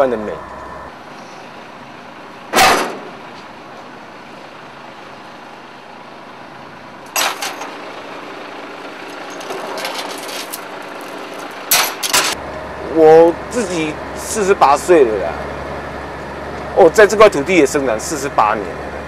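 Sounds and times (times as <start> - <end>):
street and traffic noise: 0.0 - 19.0
loud bangs of load handled: 2.5 - 3.2, 11.6 - 12.4.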